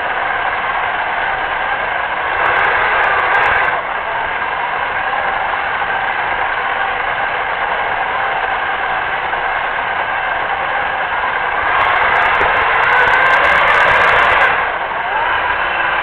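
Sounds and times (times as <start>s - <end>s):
electric motor whirring: 1.5s - 4.6s, 8.5s - 16.0s.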